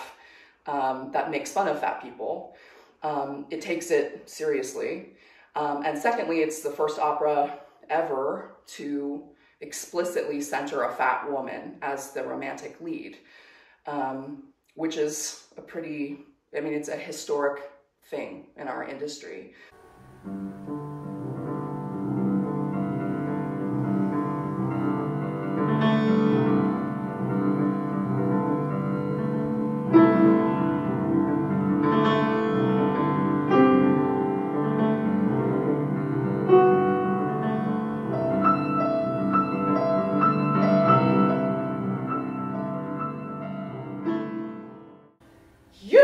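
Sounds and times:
solo piano chords: 19.8s - 45.2s.

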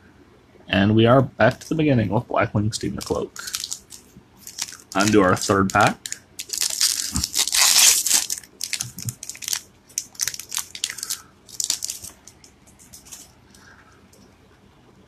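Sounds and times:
foil wrapper tearing and crinkling: 2.8s - 13.3s.

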